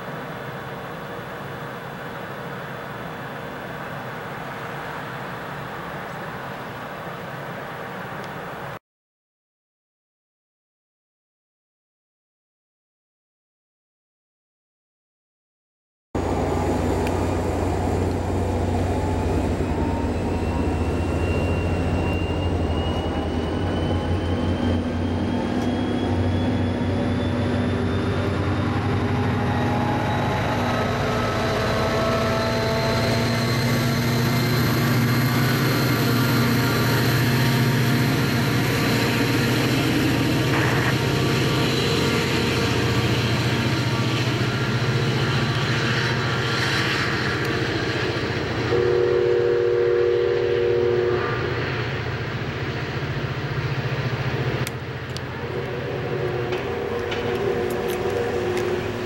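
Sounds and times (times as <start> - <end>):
diesel locomotive engine: 0.0 - 8.8, 16.2 - 59.0
faint rising whine: 16.2 - 48.6
train wheels on rails: 16.2 - 59.0
chime-like train horn: 19.9 - 24.1, 48.7 - 51.4.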